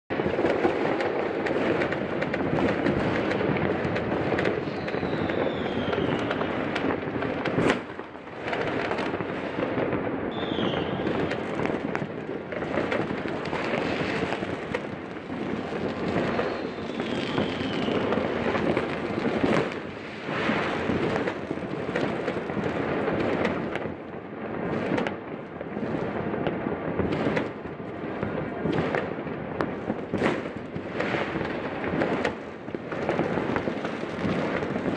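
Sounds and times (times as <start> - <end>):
fireworks bangs and crackling: 0.1 - 34.9
loud single firework bangs: 0.1 - 34.9
falling firework whistles: 4.4 - 7.0, 10.3 - 11.7, 15.6 - 23.8, 30.2 - 32.4.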